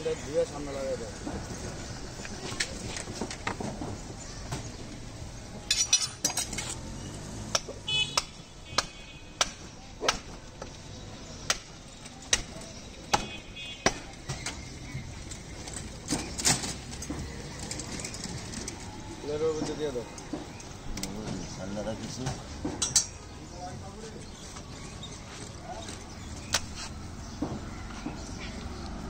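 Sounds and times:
short metallic clinks: 0:05.6 - 0:06.8
cleaver chopping meat on a block: 0:13.1 - 0:14.1.

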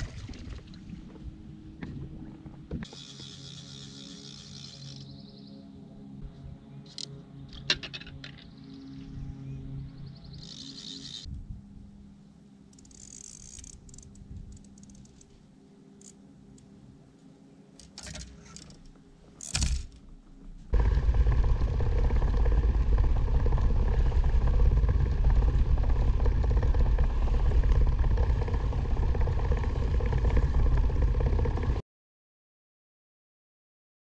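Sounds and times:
boat motor: 0:00.9 - 0:11.3, 0:20.7 - 0:31.8
wind noise: 0:11.2 - 0:12.0, 0:13.8 - 0:14.7, 0:20.7 - 0:31.8.

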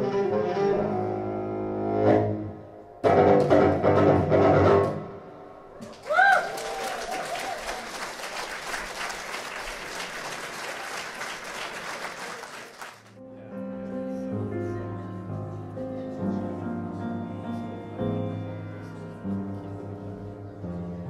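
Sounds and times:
audience applauding: 0:05.8 - 0:13.2
slow music with held notes: 0:13.2 - 0:21.0.

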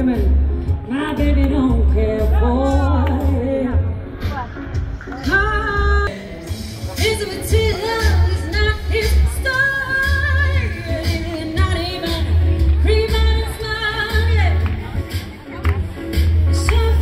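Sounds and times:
person singing: 0:00.0 - 0:04.4.

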